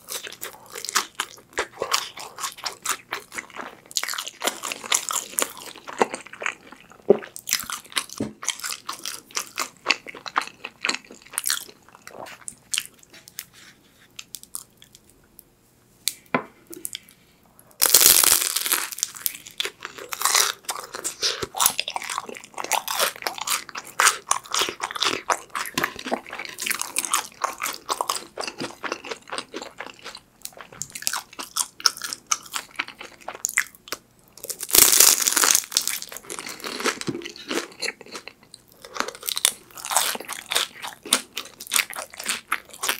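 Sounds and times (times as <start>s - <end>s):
crunchy chewing: 0.0s - 15.1s, 17.8s - 42.9s
soft chewing: 0.0s - 15.5s, 35.8s - 42.9s
crunching bite: 17.8s - 30.2s, 34.4s - 42.9s.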